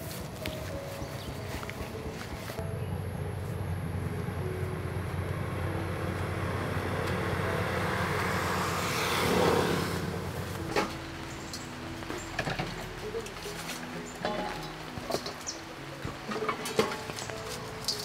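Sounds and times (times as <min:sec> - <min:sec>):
vehicle engine driving past: 0:02.6 - 0:10.7.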